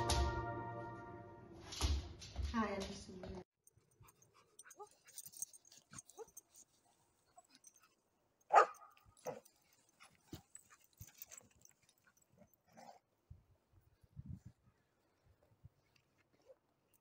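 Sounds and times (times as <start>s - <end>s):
dog barking: 8.5s - 9.4s.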